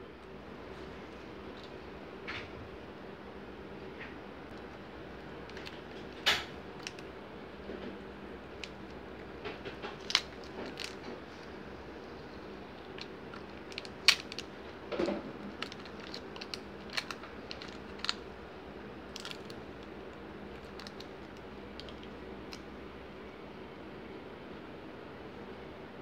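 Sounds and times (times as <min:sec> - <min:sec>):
faint steady hum: 0:00.0 - 0:26.0
plastic film crinkling: 0:05.4 - 0:07.1, 0:08.4 - 0:11.6, 0:12.3 - 0:18.4, 0:19.1 - 0:22.6.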